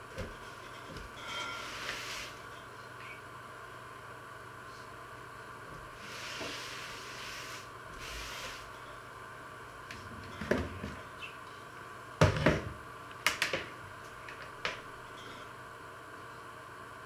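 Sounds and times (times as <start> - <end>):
objects knocking on counter: 12.2 - 12.8.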